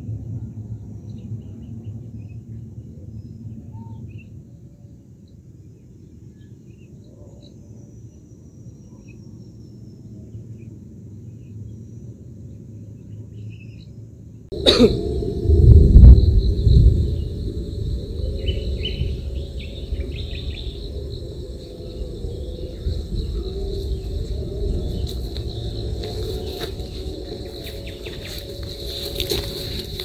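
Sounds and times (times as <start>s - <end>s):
faint bird chirps: 1.0s - 14.0s
loud sudden noise: 14.5s - 19.3s
steady low rumble: 14.5s - 30.0s.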